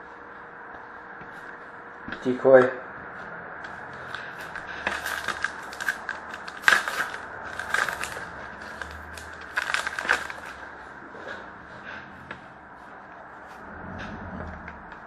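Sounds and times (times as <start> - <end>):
cards being handled: 3.6 - 10.6
card pack wrapper crinkling: 4.0 - 10.7.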